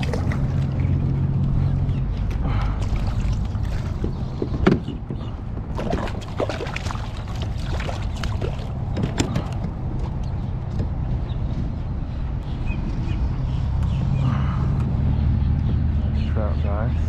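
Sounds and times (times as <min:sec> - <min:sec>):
water splashing against hull: 0:00.0 - 0:11.0
steady low rumble: 0:00.0 - 0:17.0
knocks and clatters: 0:08.8 - 0:11.7.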